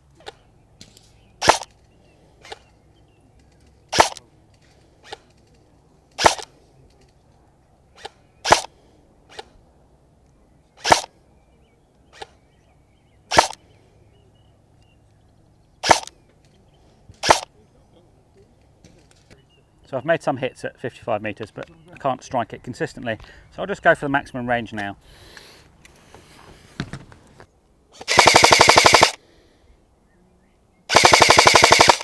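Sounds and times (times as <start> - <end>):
airsoft rifle shots: 1.4 - 1.7, 3.9 - 4.2, 6.2 - 6.5, 8.0 - 8.7, 10.8 - 11.1, 13.3 - 13.6, 15.8 - 16.1, 17.2 - 17.5, 28.0 - 29.2, 30.9 - 32.0.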